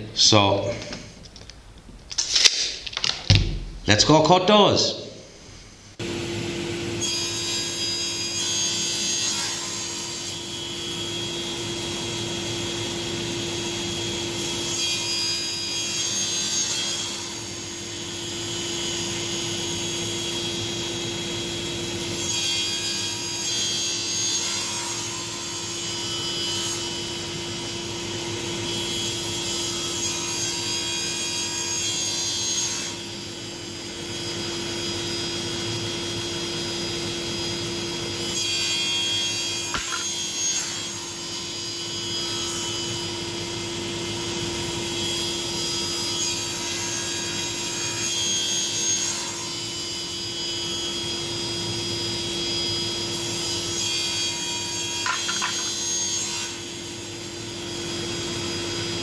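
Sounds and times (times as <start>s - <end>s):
saw cutting boards: 3.8s - 59.0s
panel saw running: 36.0s - 43.0s, 54.4s - 57.0s.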